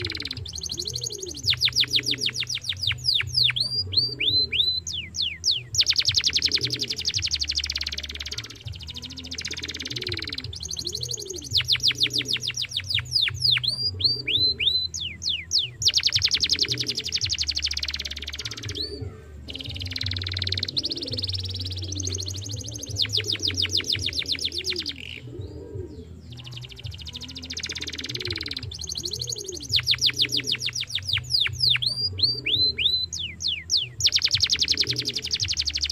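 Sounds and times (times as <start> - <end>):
canary singing: 0.0 - 35.9.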